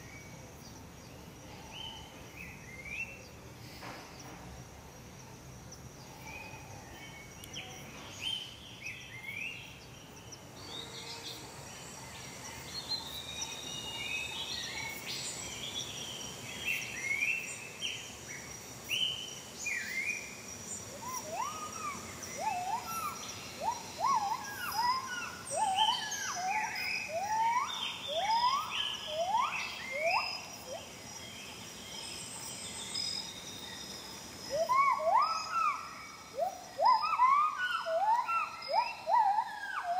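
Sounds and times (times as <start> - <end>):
high insect whine: 0.0 - 39.9
swooping whistled bird calls: 18.9 - 31.6, 32.3 - 39.9.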